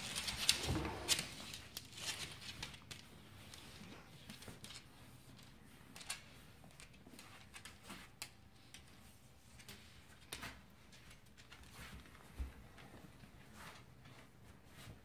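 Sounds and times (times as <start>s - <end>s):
dog claws clicking on floor: 0.0s - 13.1s.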